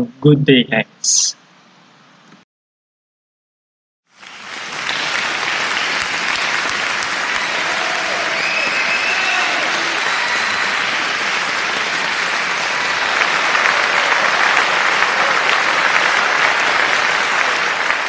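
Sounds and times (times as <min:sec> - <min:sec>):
crowd applause: 0:04.1 - 0:18.0.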